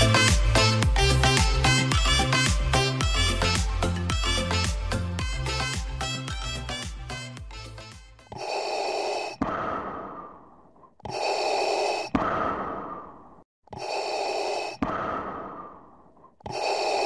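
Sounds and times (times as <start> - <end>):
heavy breathing: 8.2 - 17.0.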